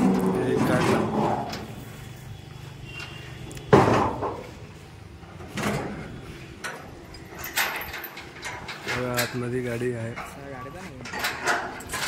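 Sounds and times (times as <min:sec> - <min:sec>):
door clunk: 0:03.7 - 0:04.4.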